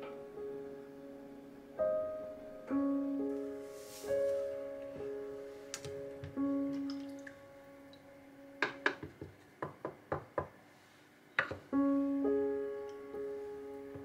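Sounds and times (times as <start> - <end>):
soft piano music: 0.0 - 14.0
wooden pieces knocking on tray: 8.6 - 10.4.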